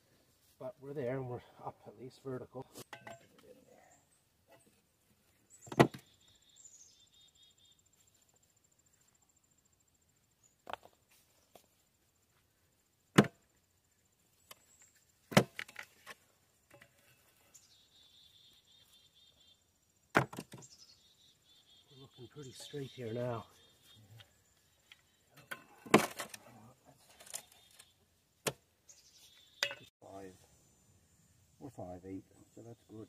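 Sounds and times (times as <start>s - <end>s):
stones knocking on wood: 15.3s - 15.8s
high chirping: 20.6s - 25.4s.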